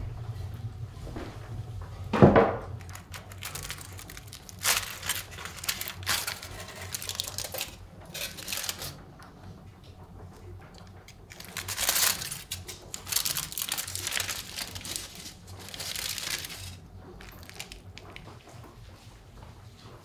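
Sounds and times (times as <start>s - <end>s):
crumpling and crinkling by hand: 2.6s - 9.4s, 10.2s - 19.1s.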